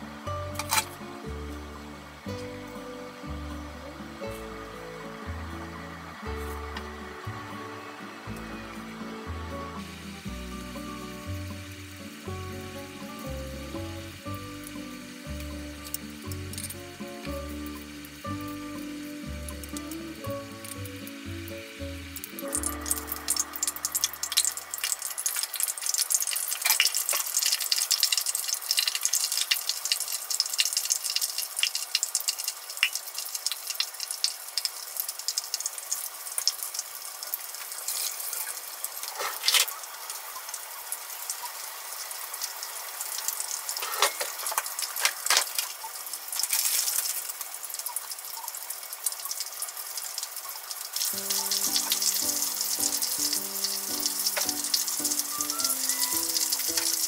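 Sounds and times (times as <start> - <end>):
background music: 0.0 - 24.9, 51.0 - 57.0
shrimp deep-frying in oil: 0.0 - 57.0.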